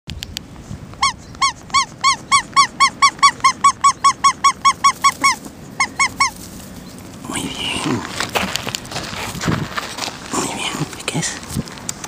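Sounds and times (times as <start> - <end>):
squeaky toy squeaks: 1.0 - 6.4.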